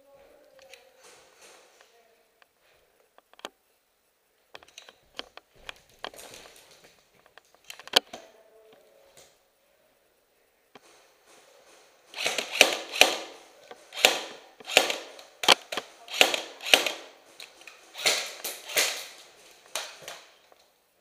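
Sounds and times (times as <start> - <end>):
airsoft gun shots: 12.2 - 13.4, 14.0 - 15.2, 16.1 - 17.1.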